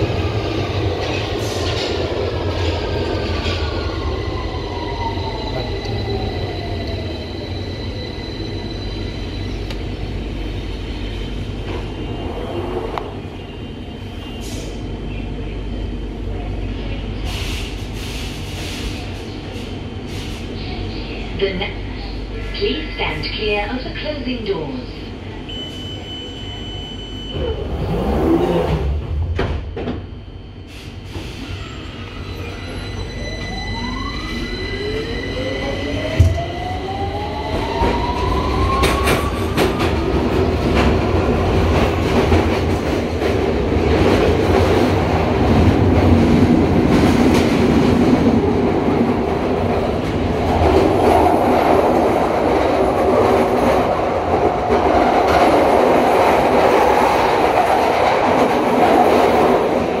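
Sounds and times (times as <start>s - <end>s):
train wheel and rail noise: 0.0s - 60.0s.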